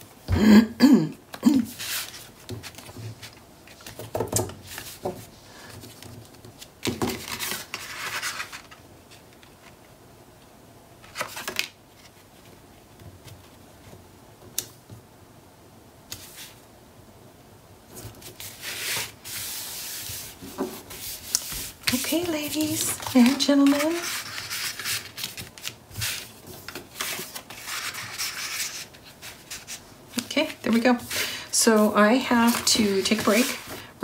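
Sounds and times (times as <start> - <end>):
paper and cardstock rustling: 1.7 - 9.7, 17.9 - 33.9.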